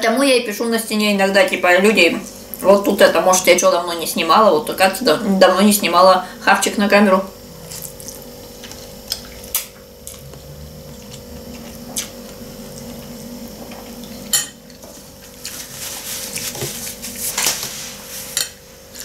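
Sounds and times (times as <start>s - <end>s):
faint steady hum: 0.0s - 19.0s
crackly eating noises: 7.3s - 19.0s.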